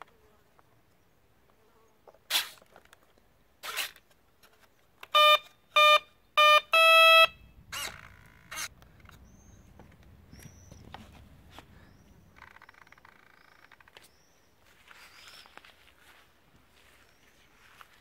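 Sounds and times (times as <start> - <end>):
electronic speed controller beeps: 5.2 - 7.4.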